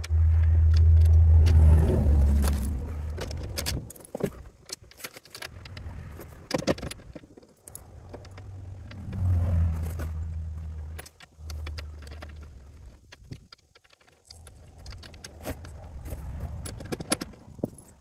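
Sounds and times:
low steady rumble: 0.0 - 4.6, 7.7 - 13.4.

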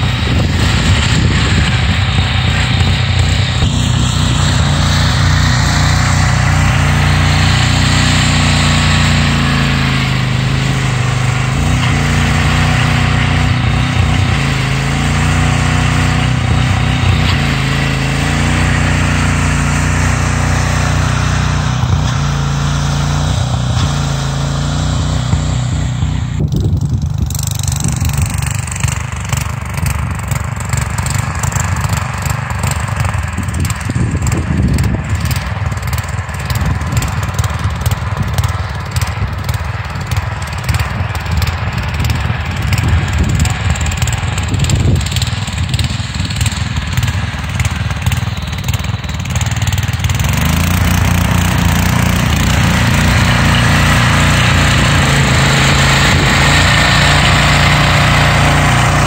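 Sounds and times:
garden tractor engine running: 0.0 - 59.0.

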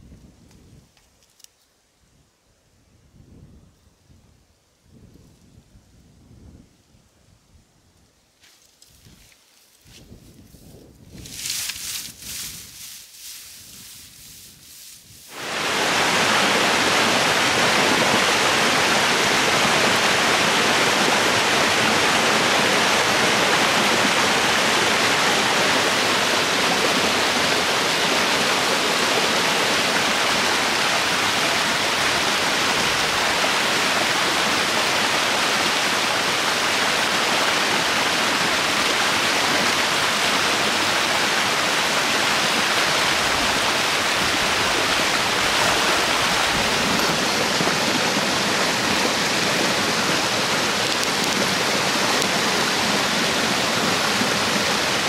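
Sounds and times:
white water rushing over boulders: 15.3 - 55.0.

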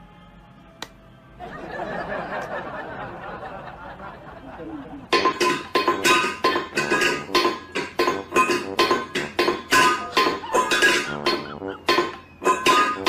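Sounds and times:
metal bowl clanging on tiled floor: 5.1 - 13.0.

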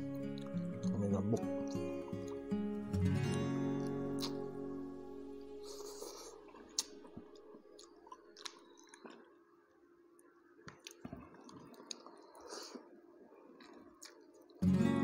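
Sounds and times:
close-up chewing: 5.6 - 9.4, 10.6 - 14.6
wet mouth clicks and smacks: 6.7 - 9.3, 10.7 - 12.8.

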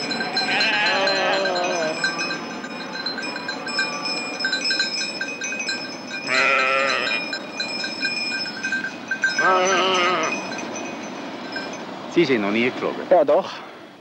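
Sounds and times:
high tinkling: 0.0 - 13.0
sheep bleating: 0.4 - 1.9, 6.3 - 7.2, 9.4 - 10.4.

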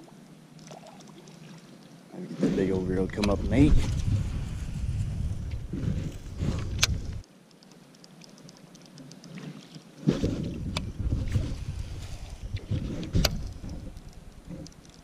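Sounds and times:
wind buffeting microphone: 2.6 - 7.2, 10.1 - 14.8
sharp clicks: 6.6 - 9.4.

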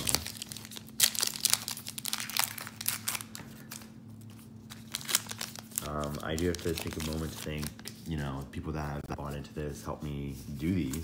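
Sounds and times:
plastic wrapper crinkling: 0.0 - 8.4.

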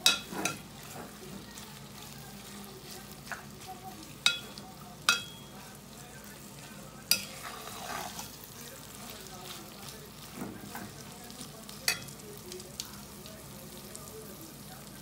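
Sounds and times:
spoon clanking against a pot: 0.0 - 1.4, 3.1 - 5.7, 7.0 - 8.4, 11.8 - 12.2
meat sizzling in a pot: 0.0 - 15.0.

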